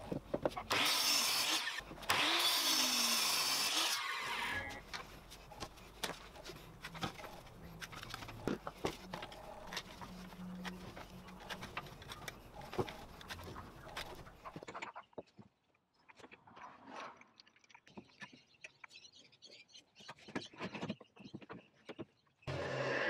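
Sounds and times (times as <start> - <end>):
mitre saw cutting wood: 0.6 - 14.3, 22.5 - 23.0.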